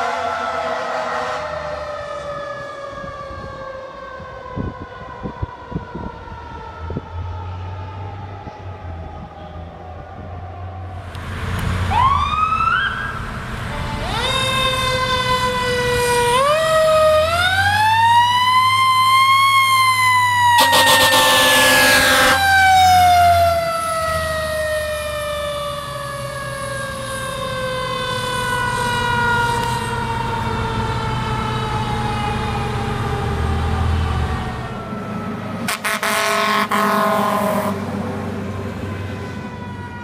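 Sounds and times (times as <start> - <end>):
air horn blast: 20.5 - 22.4, 35.7 - 37.8.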